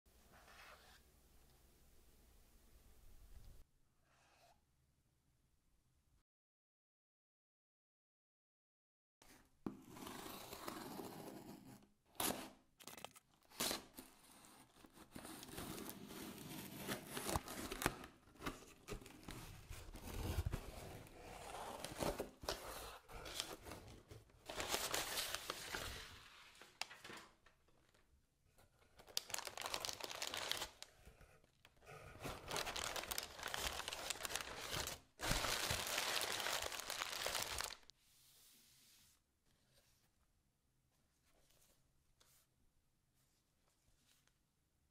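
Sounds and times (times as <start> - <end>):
packing paper crinkling: 24.4 - 28.0, 29.0 - 30.9, 32.2 - 37.9.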